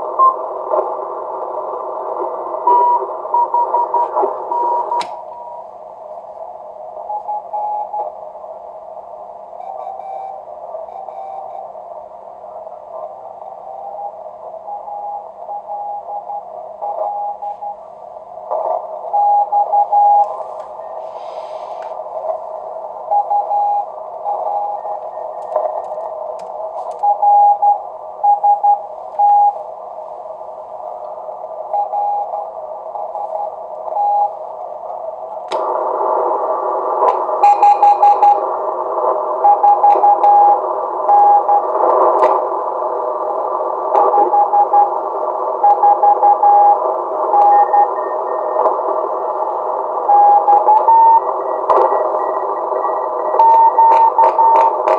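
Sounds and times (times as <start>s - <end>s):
radio band hiss: 0.0s - 54.9s
morse code beeps: 2.7s - 5.6s, 9.6s - 11.7s, 19.0s - 21.8s, 23.1s - 25.7s, 27.0s - 29.6s, 31.7s - 32.4s, 33.0s - 34.4s, 37.4s - 38.4s, 39.4s - 41.8s, 44.0s - 45.0s, 45.6s - 48.7s, 50.0s - 54.9s.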